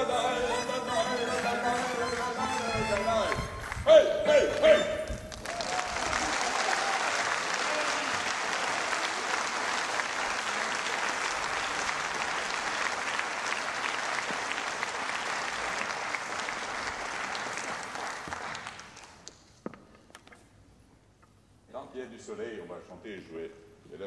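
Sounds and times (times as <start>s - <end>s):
audience applauding: 4.4s - 19.3s.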